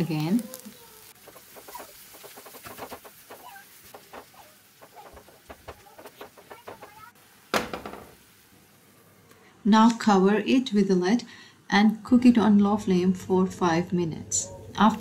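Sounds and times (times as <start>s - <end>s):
spatula knock: 1.6s - 8.2s.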